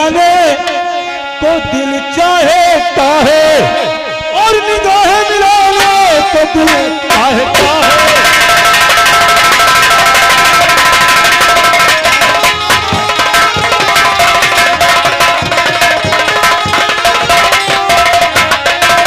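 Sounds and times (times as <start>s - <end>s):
held melody notes: 0.4s - 19.0s
rapid hand-drum strokes: 5.7s - 19.0s.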